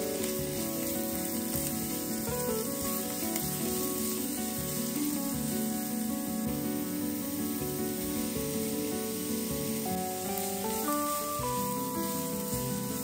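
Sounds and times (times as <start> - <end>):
background music: 0.0 - 13.0
onion sizzling in oil: 0.0 - 13.0.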